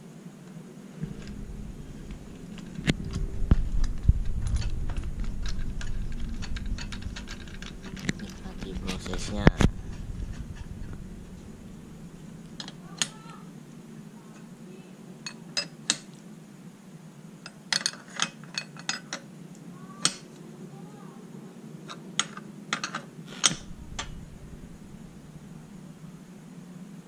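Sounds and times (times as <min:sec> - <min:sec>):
low hum: 0:00.8 - 0:15.3, 0:23.4 - 0:26.7.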